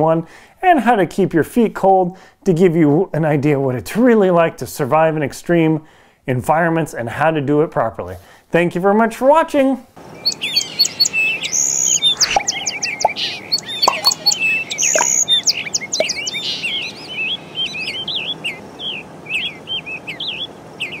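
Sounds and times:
birds chirping and calling: 0:10.0 - 0:21.0.

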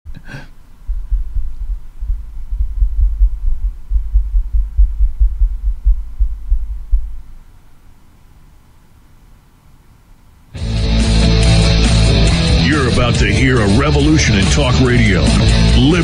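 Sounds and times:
deep throbbing rumble: 0:00.8 - 0:07.4.

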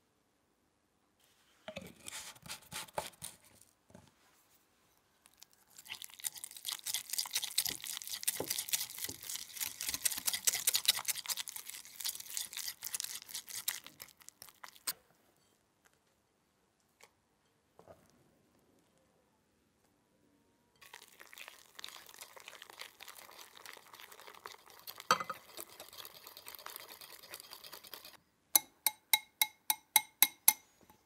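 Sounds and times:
whisk scraping glass bowl: 0:05.9 - 0:14.1, 0:21.9 - 0:28.2.

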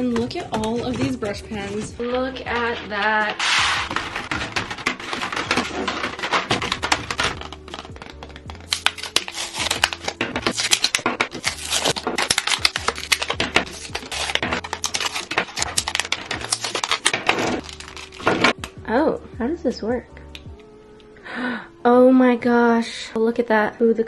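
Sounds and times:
pens tapping on table: 0:00.0 - 0:08.8, 0:09.7 - 0:12.0
soft background music: 0:00.0 - 0:24.0
plastic packaging crinkling and tearing: 0:00.3 - 0:18.8.

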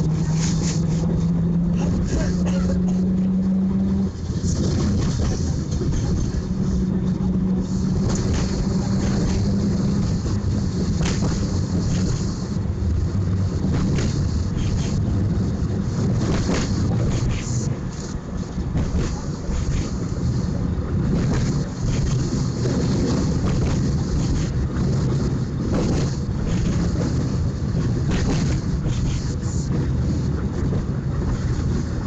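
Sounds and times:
tram rumbling: 0:00.0 - 0:32.0.

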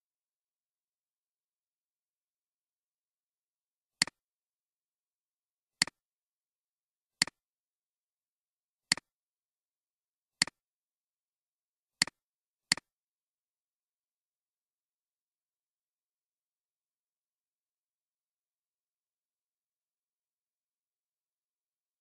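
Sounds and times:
computer mouse clicks: 0:12.0 - 0:12.9.

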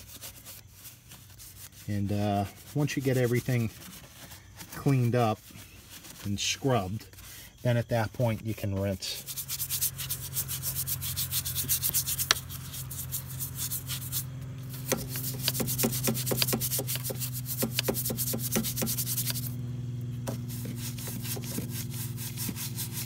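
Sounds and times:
scrub brush scrubbing: 0:00.0 - 0:19.6, 0:20.3 - 0:23.0
steady low hum: 0:00.0 - 0:23.0.

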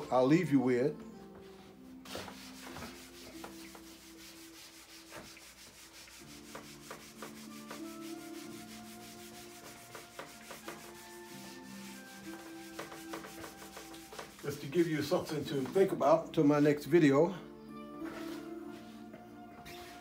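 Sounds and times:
rubbing strokes on whiteboard: 0:01.5 - 0:16.0, 0:18.0 - 0:19.0, 0:19.7 - 0:20.0.

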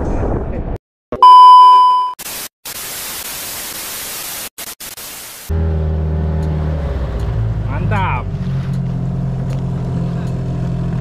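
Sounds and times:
high test tone beep: 0:01.2 - 0:02.2
tv static hiss: 0:02.2 - 0:05.5.

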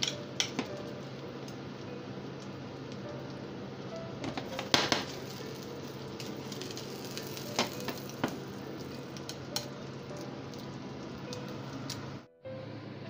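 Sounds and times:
chopsticks clicking on pan: 0:00.0 - 0:01.6, 0:06.2 - 0:10.7
omelette sizzling in oil: 0:00.0 - 0:12.3.

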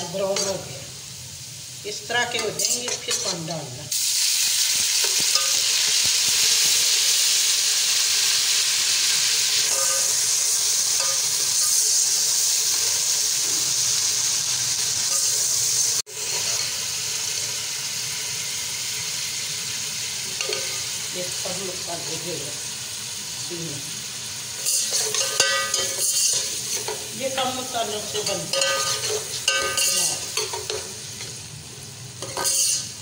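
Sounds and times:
water sizzling in hot oil: 0:00.0 - 0:33.0
metal spoon stirring: 0:02.4 - 0:03.5, 0:24.6 - 0:27.0, 0:28.2 - 0:31.3, 0:32.2 - 0:33.0.

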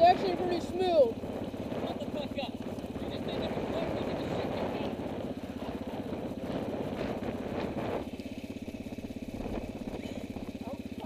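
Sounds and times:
quad engine idling: 0:00.0 - 0:11.0.

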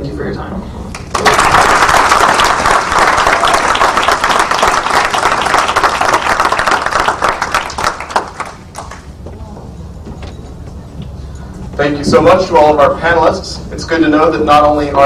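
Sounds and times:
audience applauding: 0:00.9 - 0:09.1.

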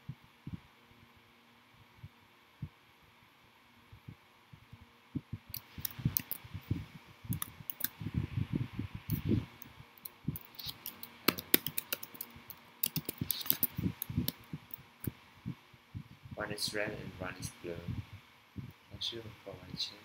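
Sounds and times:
computer keys clicking: 0:05.5 - 0:06.4, 0:07.3 - 0:07.9, 0:10.0 - 0:14.8
sharp click: 0:05.5 - 0:06.4, 0:10.0 - 0:14.8.

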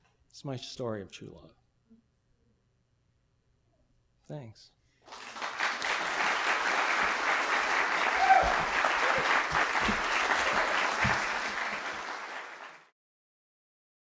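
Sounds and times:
audience applauding: 0:05.1 - 0:12.9.

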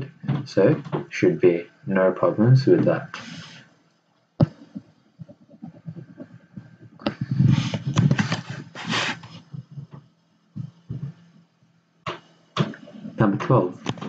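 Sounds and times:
stylus scratching and tapping: 0:00.0 - 0:01.2, 0:02.7 - 0:03.7, 0:04.4 - 0:11.4, 0:12.0 - 0:14.0.

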